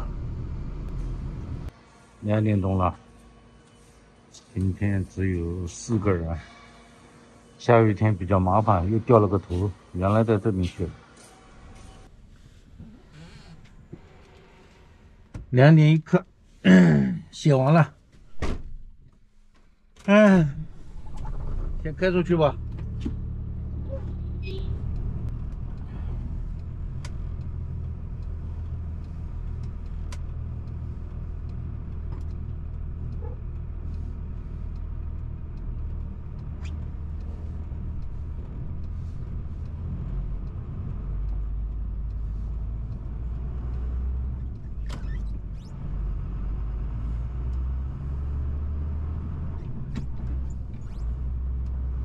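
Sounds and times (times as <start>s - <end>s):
truck engine drone: 0.0s - 15.3s, 20.1s - 52.0s
road noise on wet road: 21.2s - 52.0s
faint clicks: 22.6s - 52.0s.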